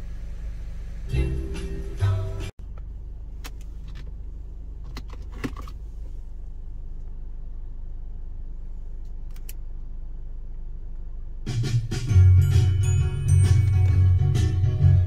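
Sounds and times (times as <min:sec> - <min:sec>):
car engine idling: 0:00.0 - 0:11.4.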